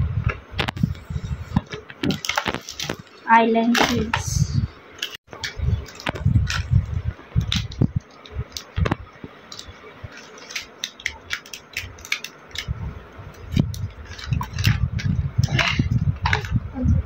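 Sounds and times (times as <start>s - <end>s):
low rumbling handling noise: 0.0s - 10.2s, 12.6s - 17.0s
plastic items clicking and rattling: 1.6s - 4.3s, 5.0s - 6.7s, 7.4s - 12.7s, 13.5s - 16.6s.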